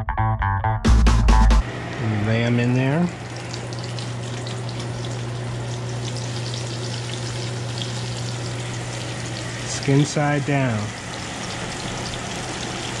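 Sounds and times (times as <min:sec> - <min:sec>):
steady low hum: 0:01.6 - 0:13.0
fish frying in grease: 0:02.8 - 0:13.0.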